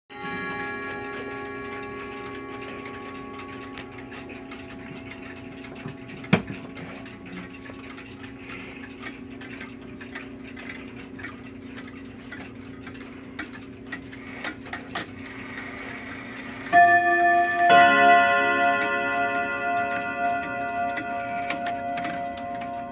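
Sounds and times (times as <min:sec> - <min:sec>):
low steady hum: 0:00.2 - 0:13.9, 0:16.7 - 0:22.9
wall clock ticking: 0:00.2 - 0:22.9
clock hand clicks: 0:16.7 - 0:22.9.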